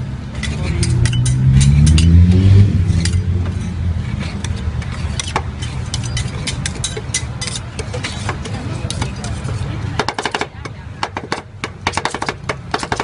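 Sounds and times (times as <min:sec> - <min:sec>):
metal spatulas scraping steel pan: 0:00.3 - 0:10.0
motor vehicle accelerating past: 0:00.6 - 0:04.5.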